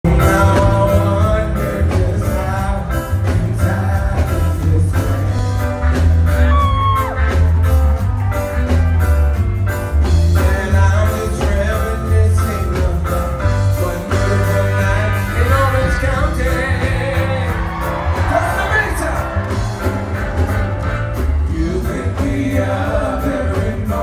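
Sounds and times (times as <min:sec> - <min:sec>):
man singing: 0:00.0 - 0:06.0, 0:10.1 - 0:18.6, 0:21.4 - 0:24.0
live reggae band: 0:00.0 - 0:24.0.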